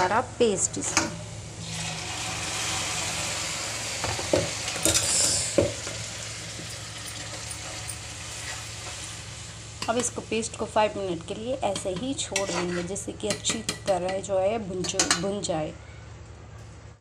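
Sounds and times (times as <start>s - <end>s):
paste sizzling in hot oil: 1.6s - 10.0s.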